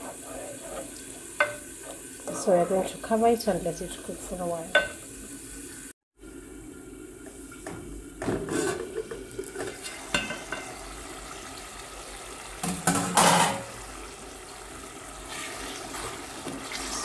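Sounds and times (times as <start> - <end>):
pot and lid clattering: 8.2 - 10.8, 12.6 - 13.8
pot lid knocking and clanking: 12.6 - 13.7.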